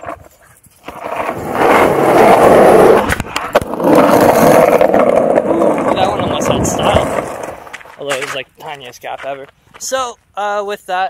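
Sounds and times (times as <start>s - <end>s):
skateboard wheels rolling on pavement: 0.0s - 10.2s
skateboard clacks: 2.2s - 8.4s.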